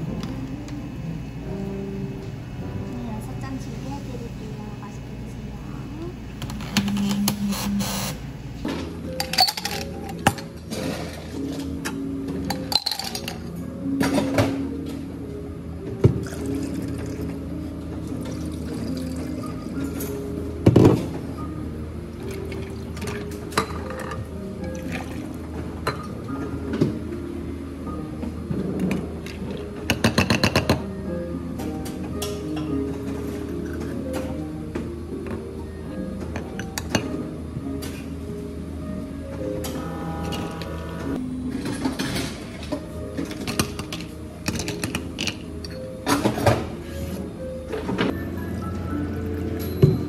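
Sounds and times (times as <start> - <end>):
metal pitchers clinking on cups: 9.2 - 11.2, 12.5 - 13.5.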